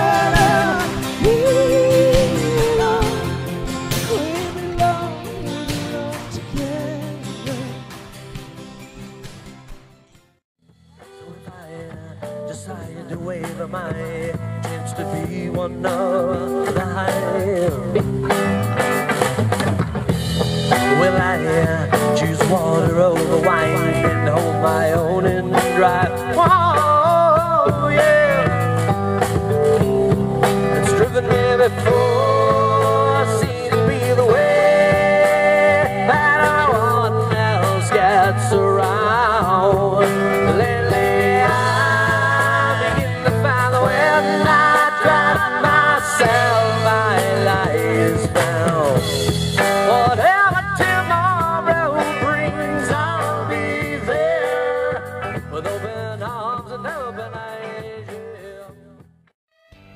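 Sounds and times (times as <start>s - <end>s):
drum kit beat: 0.0s - 59.0s
rock band music: 0.0s - 59.9s.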